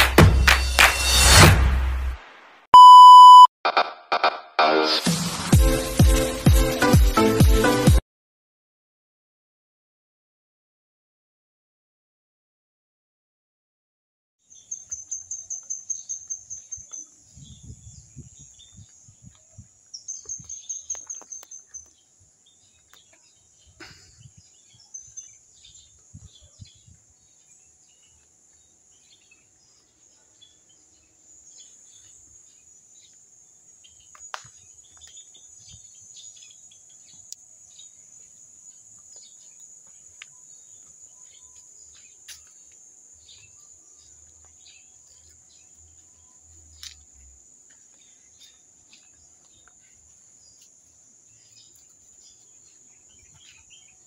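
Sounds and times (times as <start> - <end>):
bird chirps: 14.4 - 33.2, 33.8 - 54.0.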